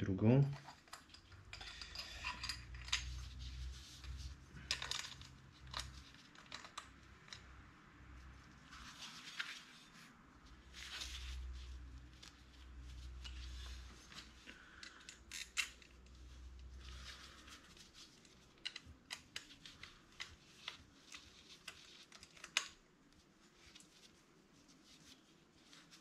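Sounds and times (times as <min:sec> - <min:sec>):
metallic scrapes: 0:01.2 - 0:06.0.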